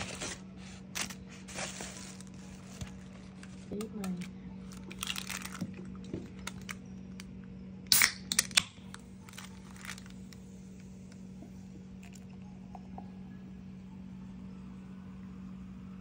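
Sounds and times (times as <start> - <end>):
paper crinkling: 0.0 - 6.6
beer can opening snap and hiss: 7.9 - 8.7.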